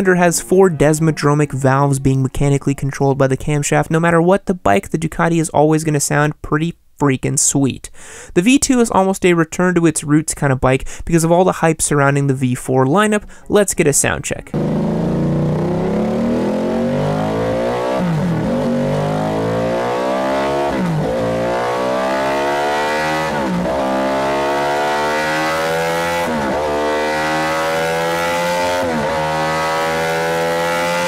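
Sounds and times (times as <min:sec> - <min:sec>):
motorcycle engine revving hard: 0:14.6 - 0:31.0.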